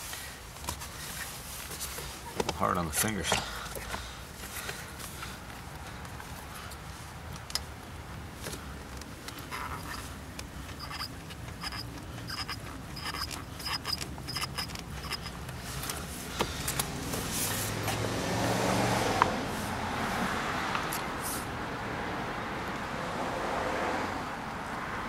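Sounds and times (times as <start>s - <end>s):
clicks and scrapes: 9.2s - 18.0s
rubber squeaking on metal: 9.4s - 15.8s
vehicle rumble passing by: 15.5s - 25.0s.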